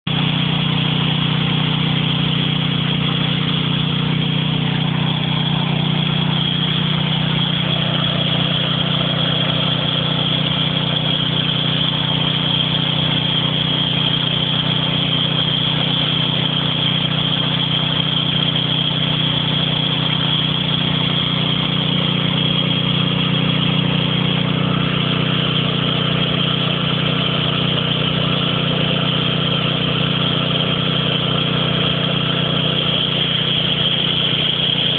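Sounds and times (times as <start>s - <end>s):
motor humming: 0.1s - 34.9s.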